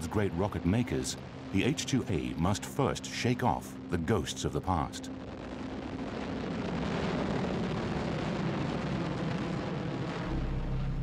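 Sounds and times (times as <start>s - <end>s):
low steady hum: 0.0s - 11.0s
rocket engines roaring: 0.0s - 11.0s.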